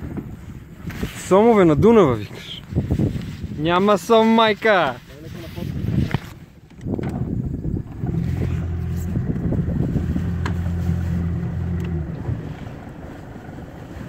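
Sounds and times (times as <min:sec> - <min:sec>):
wind on microphone: 0:00.0 - 0:14.0
outboard motor running: 0:06.8 - 0:14.0.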